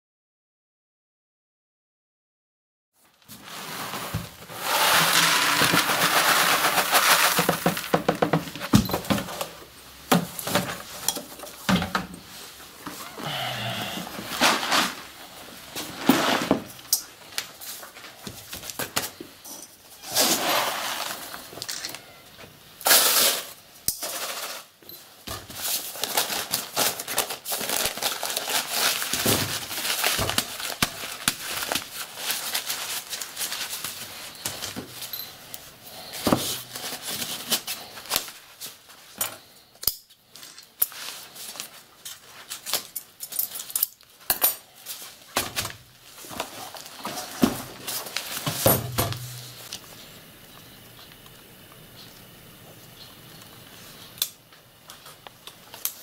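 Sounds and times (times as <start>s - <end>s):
paper crinkling and rustling: 3.0s - 9.6s, 24.0s - 39.7s, 40.3s - 49.9s.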